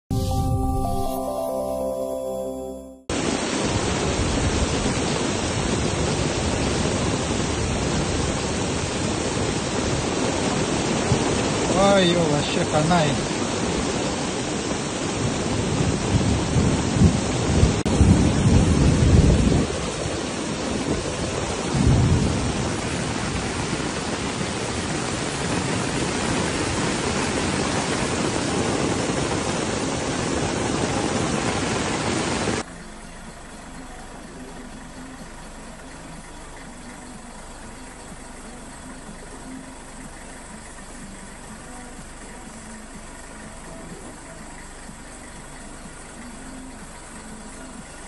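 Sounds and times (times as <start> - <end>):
heavy rain: 3.1 - 32.7
river in flood rushing: 3.1 - 32.7.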